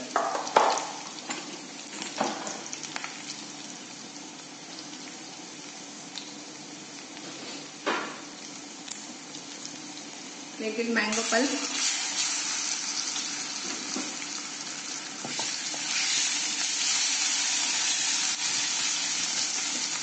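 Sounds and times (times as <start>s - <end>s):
hot oil sizzling in a wok: 0.0s - 20.0s.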